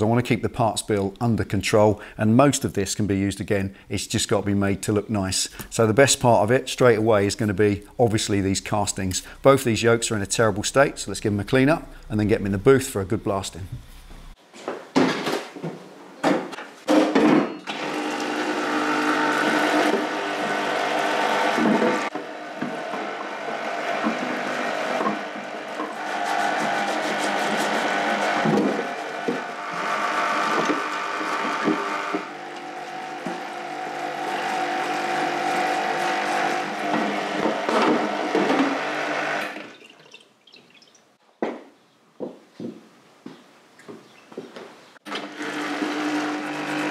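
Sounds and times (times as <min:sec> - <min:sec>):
electric pump humming: 0:07.2 - 0:14.4, 0:17.7 - 0:39.7, 0:45.1 - 0:46.9
stiff brush scrubbing metal: 0:20.2 - 0:39.1.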